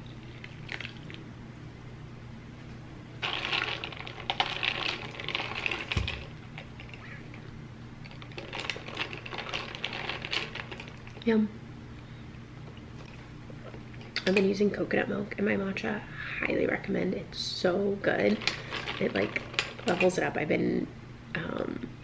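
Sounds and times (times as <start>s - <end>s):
ice cubes clinking in glass: 3.2s - 7.0s, 8.1s - 11.2s, 18.3s - 20.2s.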